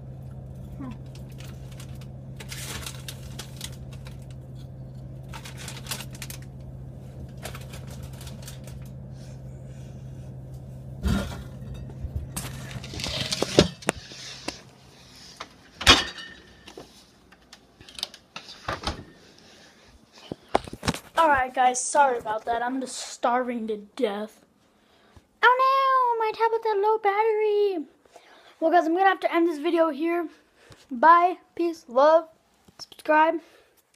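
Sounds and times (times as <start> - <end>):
refrigerator hum: 0.0 - 26.4
crackles and clicks: 0.1 - 9.1, 10.5 - 14.7.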